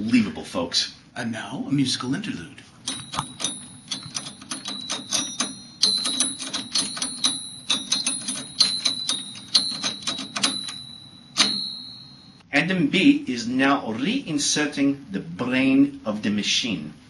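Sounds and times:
fingers plucking metal heatsink fins: 2.8s - 12.2s.

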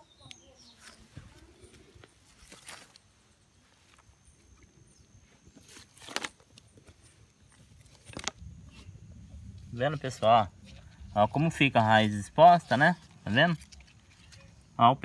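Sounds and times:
footsteps on loose soil: 0.6s - 9.0s.

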